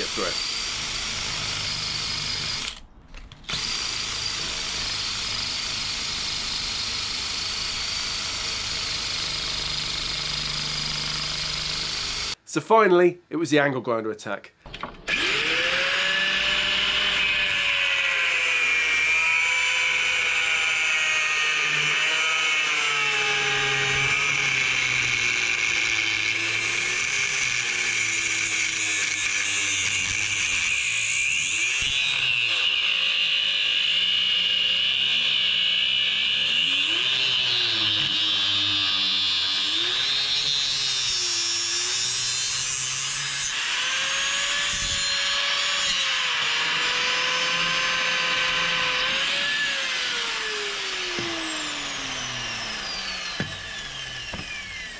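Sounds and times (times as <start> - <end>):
angle grinder cutting metal: 0.0 - 12.4, 15.1 - 54.9.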